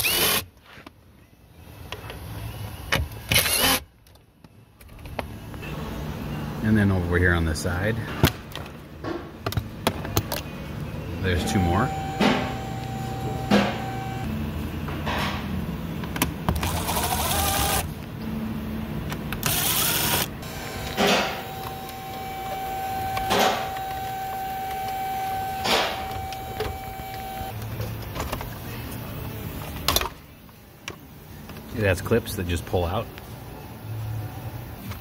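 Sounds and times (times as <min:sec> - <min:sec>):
cordless driver whirring: 0:16.6 - 0:17.9, 0:19.4 - 0:27.5.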